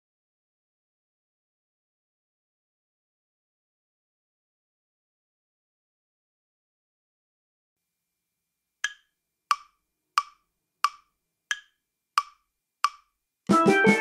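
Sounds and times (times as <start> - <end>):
metronome wood-block clicks: 8.8 - 13.1
backing track music: 13.5 - 14.0.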